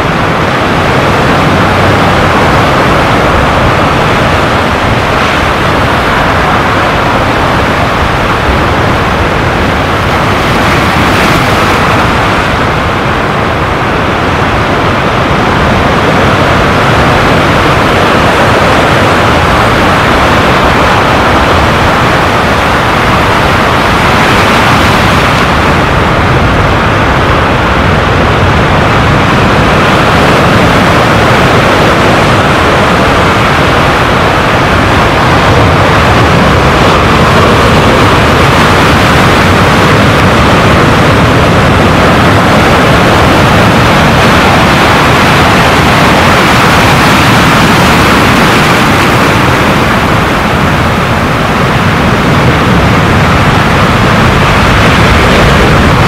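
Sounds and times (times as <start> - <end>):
waves breaking on rocks: 0.7 - 14.8.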